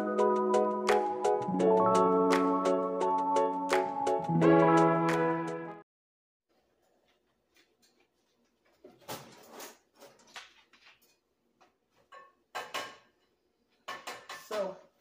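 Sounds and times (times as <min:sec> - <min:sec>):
kitchen items clattering: 0:08.6 - 0:11.2.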